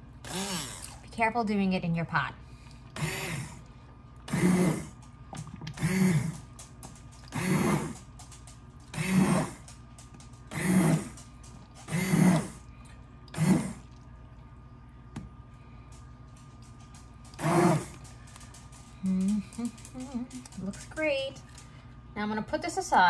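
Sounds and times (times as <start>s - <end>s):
immersion blender motor whirring: 0.2s - 1.0s, 3.0s - 3.6s, 4.3s - 5.0s, 7.3s - 8.0s, 8.9s - 9.6s, 11.9s - 12.6s, 17.4s - 18.0s.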